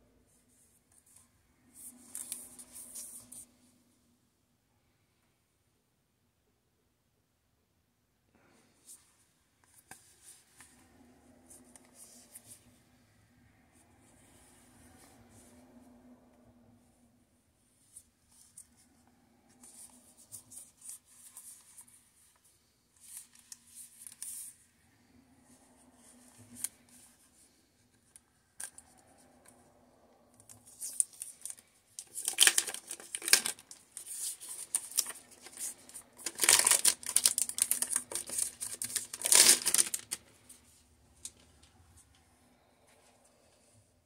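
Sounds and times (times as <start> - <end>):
plastic film crinkling: 30.7 - 40.2.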